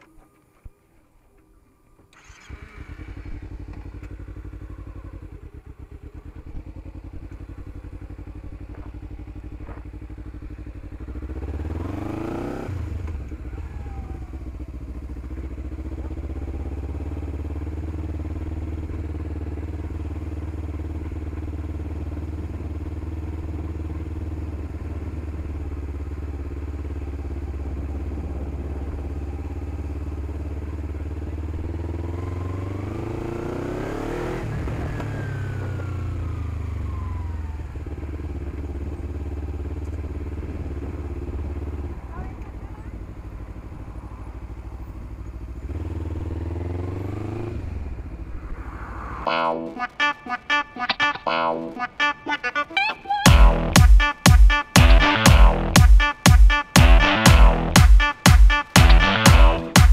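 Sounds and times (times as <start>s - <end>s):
motorcycle engine revving: 2.1s - 48.4s.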